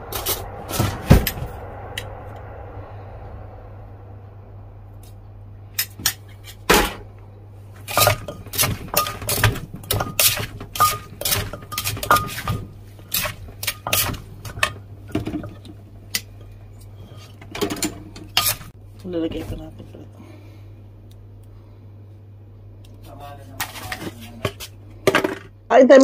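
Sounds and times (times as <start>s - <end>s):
metal spoon clinking on mortar: 7.9s - 14.8s
wooden pestle pounding in mortar: 7.9s - 15.6s.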